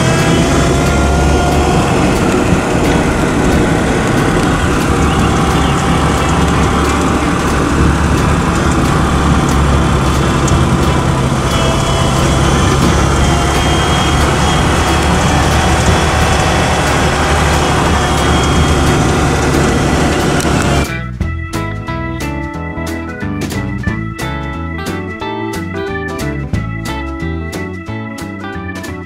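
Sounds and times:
faint whine drifting in pitch: 0.0 - 20.9
car engine running: 0.0 - 25.1.

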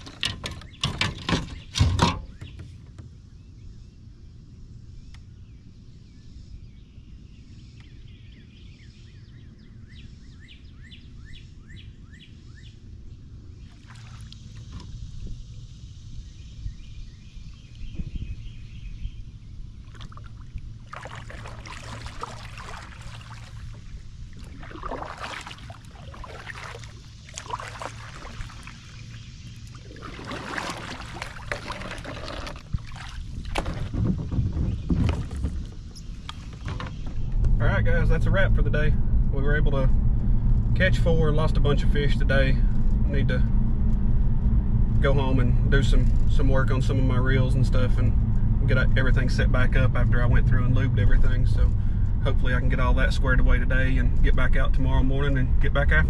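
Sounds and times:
water and wind noise: 0.0 - 9.8, 10.8 - 56.0
kayak paddle splashing: 13.7 - 14.8, 19.8 - 37.0
hull scraping aground: 19.8 - 37.1.

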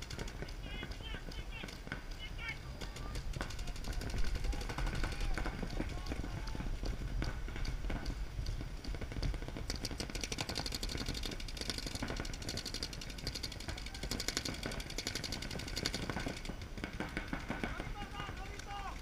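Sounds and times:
paintball markers firing: 0.0 - 19.0.

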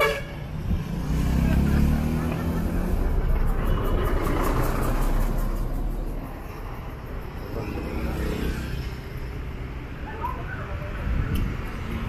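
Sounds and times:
traffic hum: 0.0 - 12.0
vehicle passing close by: 0.5 - 9.1.

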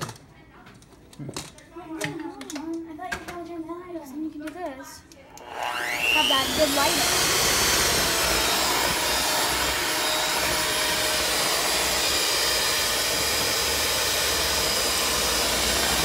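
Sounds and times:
electric hand mixer whirring: 5.3 - 16.0.

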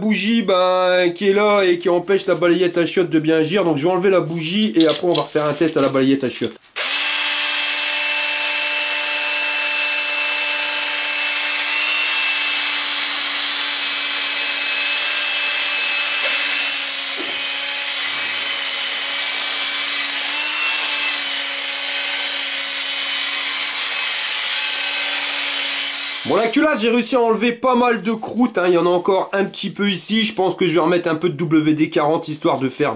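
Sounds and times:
electric drill whining: 6.8 - 26.5.

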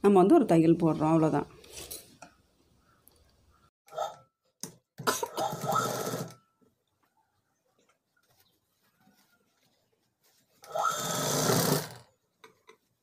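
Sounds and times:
sewing machine stitching: 5.4 - 6.4, 10.6 - 12.1.

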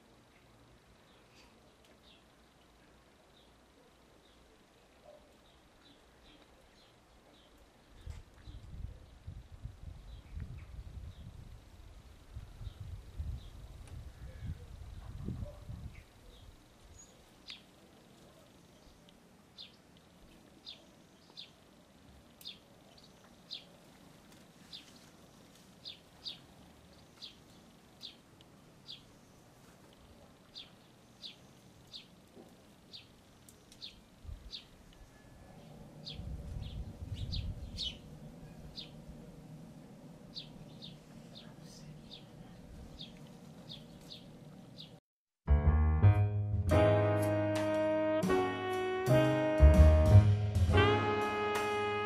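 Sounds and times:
sparrows cheeping: 24.6 - 29.7, 30.5 - 32.2, 32.9 - 39.1, 40.3 - 45.0.

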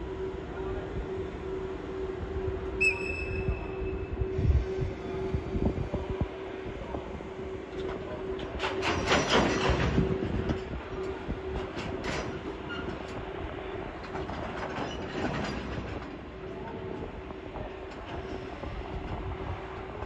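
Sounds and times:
train wheels clattering on rails: 5.8 - 20.0.

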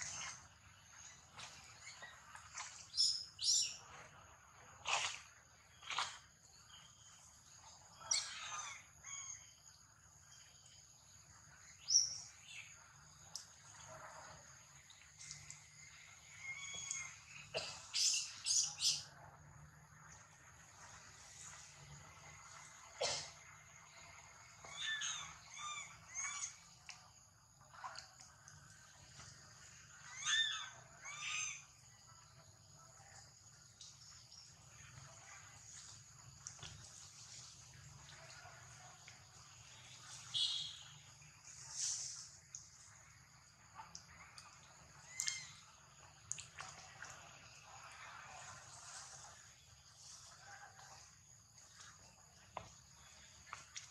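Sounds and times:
monkeys squealing and chirping: 24.7 - 26.6, 30.1 - 31.6
monkey giving high cries: 30.2 - 31.6.

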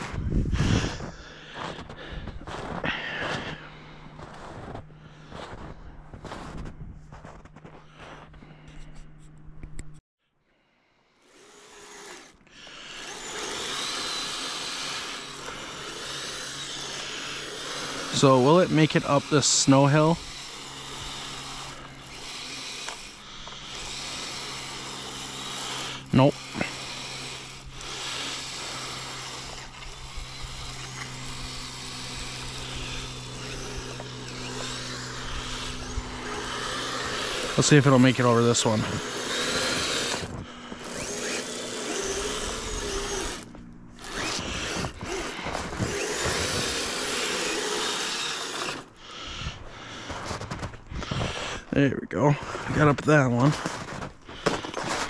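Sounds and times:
footsteps crunching in snow: 0.0 - 9.0, 49.8 - 51.6, 52.3 - 55.0
electric motor whine: 0.0 - 9.9, 11.1 - 51.7, 52.4 - 55.0.

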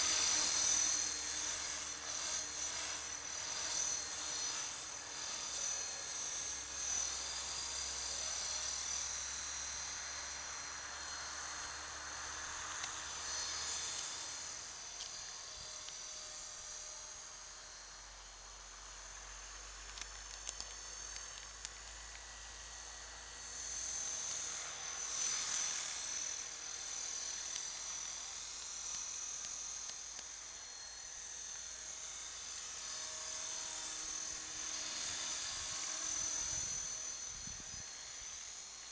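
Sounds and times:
rc helicopter motor and rotor whine: 0.0 - 38.9.

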